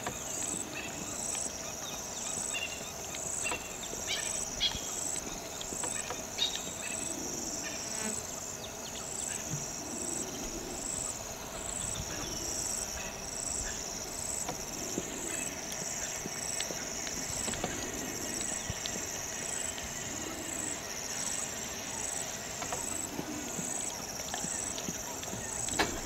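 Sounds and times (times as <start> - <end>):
crickets trilling: 0.0 - 26.0.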